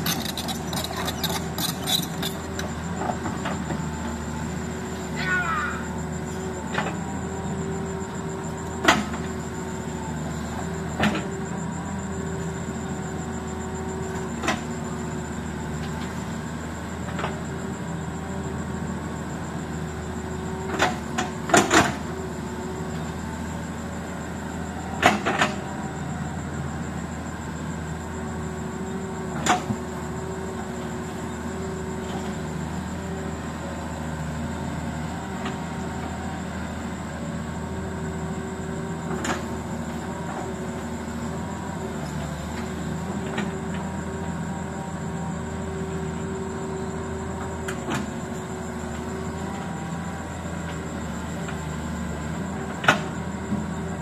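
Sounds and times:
diesel engine droning: 0:00.0 - 0:54.0.

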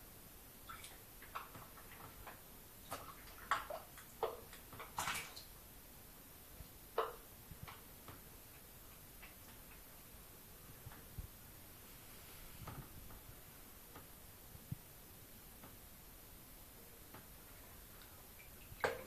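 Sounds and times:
ball and paws tapping in bathtub: 0:00.7 - 0:05.5, 0:07.0 - 0:10.0, 0:18.0 - 0:19.0.

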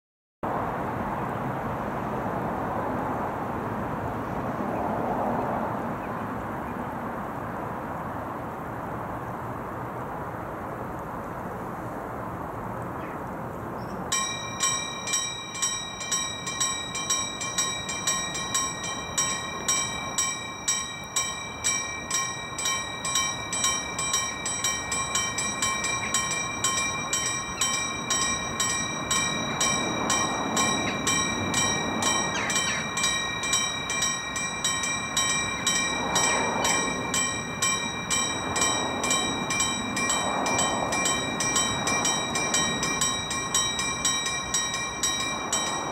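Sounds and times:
level crossing warning bell: 0:14.1 - 0:45.9.

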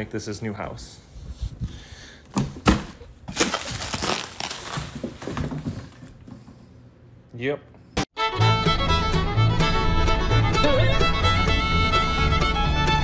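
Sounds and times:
cardboard scraping and crinkling: 0:03.3 - 0:06.1.

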